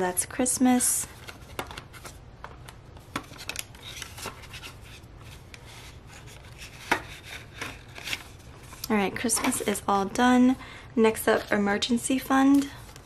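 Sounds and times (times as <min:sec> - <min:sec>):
paper banknotes rustling: 0:03.0 - 0:09.8.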